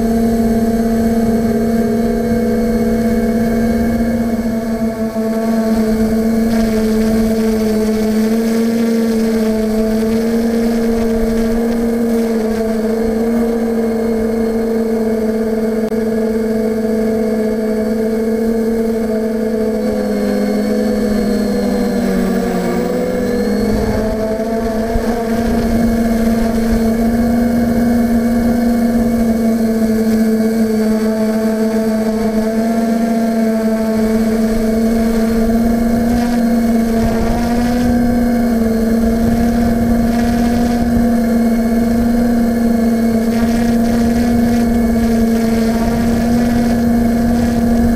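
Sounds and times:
drone propellers humming: 0.0s - 47.9s
wind buffeting microphone: 19.1s - 47.9s.

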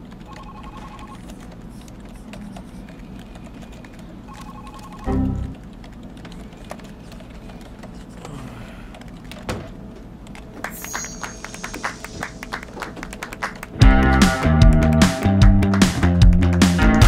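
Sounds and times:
quiet background music: 5.0s - 5.7s.

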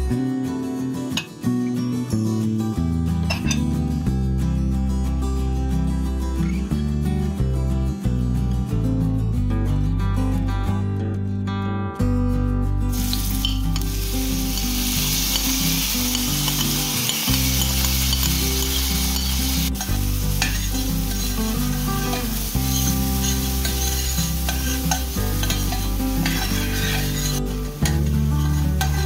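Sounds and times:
onion sizzling in oil: 12.9s - 29.0s
metal spoon scraping pan: 13.0s - 29.0s.

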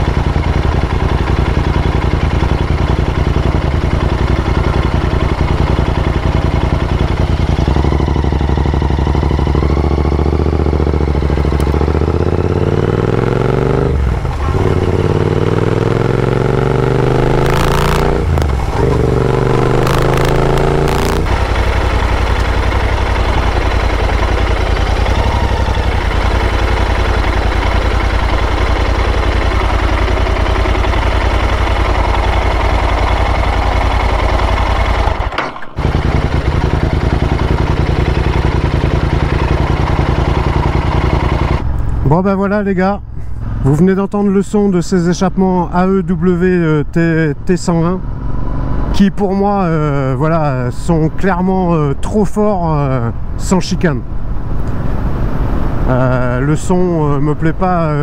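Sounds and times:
motorcycle engine revving: 0.0s - 42.0s.

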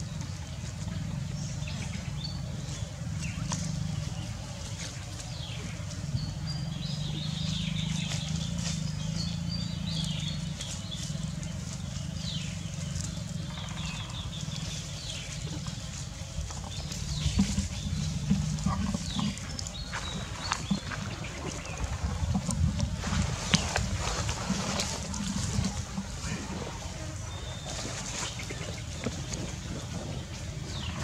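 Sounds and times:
dry leaves rustling and crunching: 1.8s - 31.0s.

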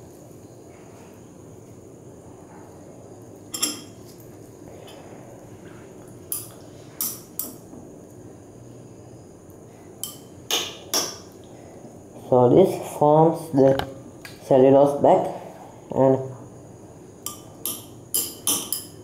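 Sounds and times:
glass rod clinking in beaker: 3.5s - 4.0s.

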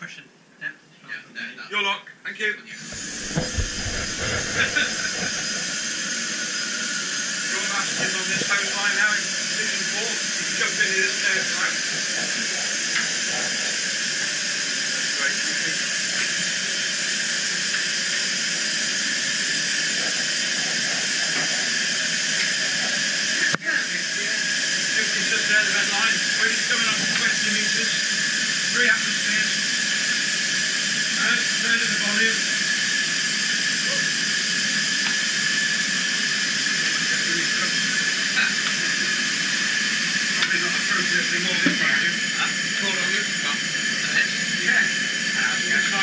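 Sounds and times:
compressed air hissing: 2.8s - 7.8s
compressed air hissing with whistle: 2.8s - 46.0s.

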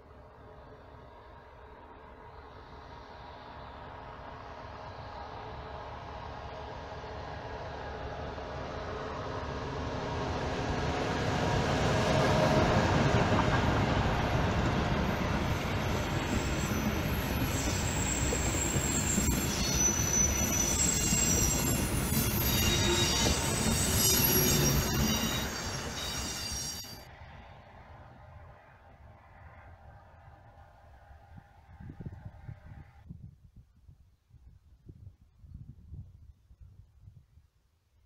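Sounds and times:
diesel locomotive engine: 0.0s - 31.9s
train wheels rumbling: 2.6s - 27.1s
wheels squealing: 15.8s - 27.0s.

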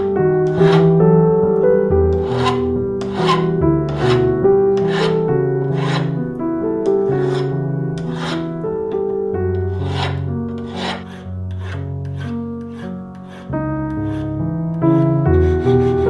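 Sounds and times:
slow chord music: 0.0s - 16.0s
metal files rasping on wire: 0.5s - 0.9s, 2.1s - 6.2s, 7.1s - 8.5s, 9.6s - 14.3s, 14.9s - 16.0s.

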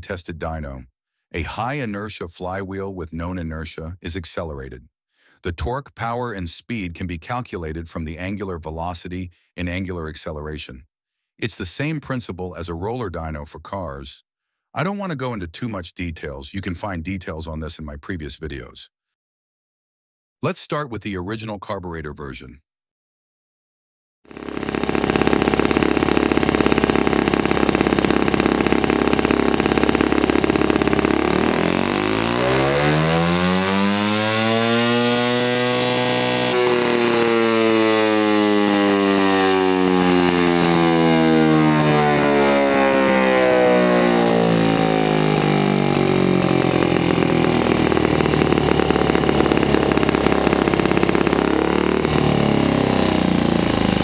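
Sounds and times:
model engine revving and idling: 24.3s - 54.0s.

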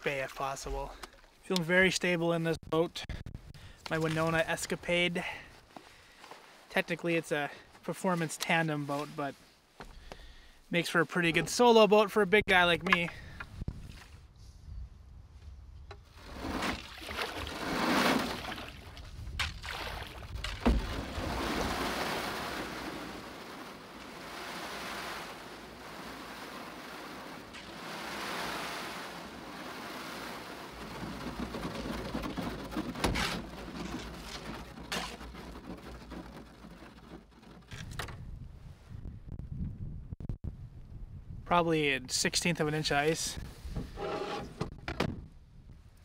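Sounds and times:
ice crunching along canoe hull: 16.2s - 38.0s.

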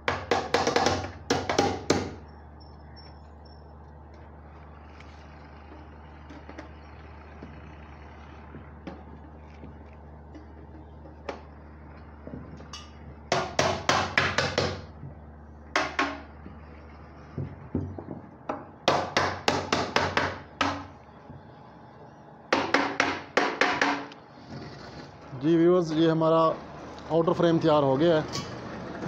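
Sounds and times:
hammer tapping on aluminium: 0.0s - 2.2s, 12.7s - 14.9s, 15.7s - 16.3s, 22.5s - 24.2s
low steady hum: 0.0s - 29.0s.

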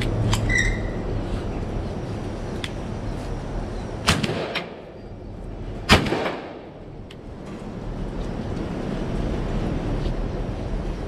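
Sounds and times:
shotgun shots with echo: 4.0s - 4.8s, 5.9s - 6.8s.

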